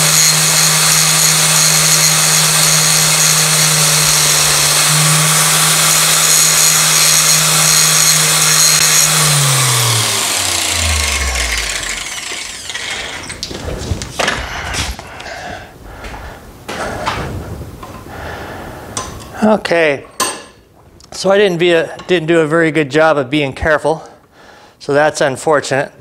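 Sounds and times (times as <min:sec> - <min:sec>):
grinder winding down: 0:00.0 - 0:13.5
angle grinder grinding metal: 0:00.0 - 0:13.6.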